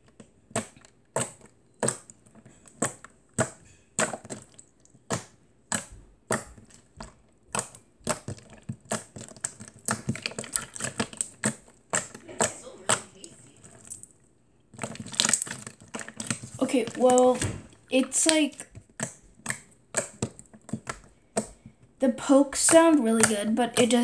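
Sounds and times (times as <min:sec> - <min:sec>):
slime clicking when pressed: 0:18.0 - 0:21.6.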